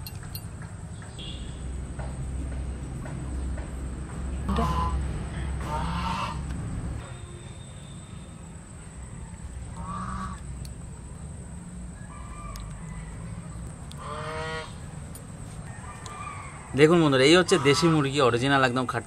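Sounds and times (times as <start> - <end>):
steady low hum: 0.0 - 16.7
fowl calling: 4.5 - 6.5, 9.0 - 10.5, 14.0 - 14.8, 15.7 - 18.2.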